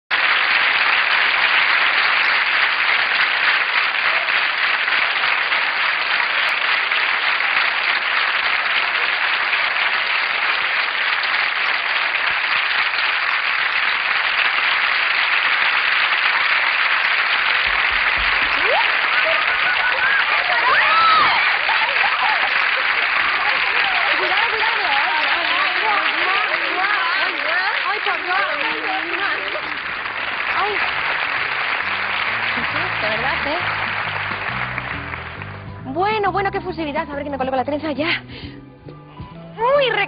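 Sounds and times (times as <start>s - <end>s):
audience applauding: 0.0s - 37.6s.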